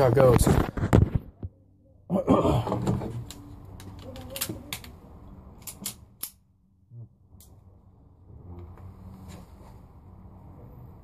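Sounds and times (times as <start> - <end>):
pistol mechanism clicks: 5.6 - 6.4.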